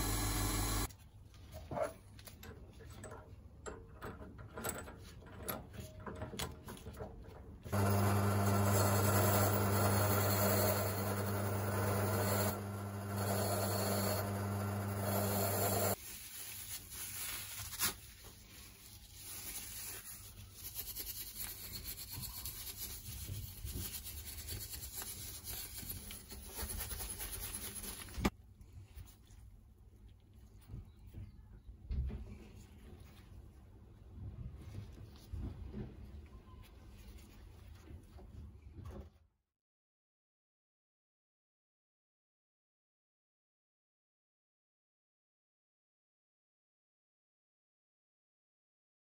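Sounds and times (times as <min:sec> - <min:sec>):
drill motor hum: 0:00.0 - 0:00.9, 0:07.7 - 0:16.0
wire brush scratching metal: 0:19.2 - 0:28.3.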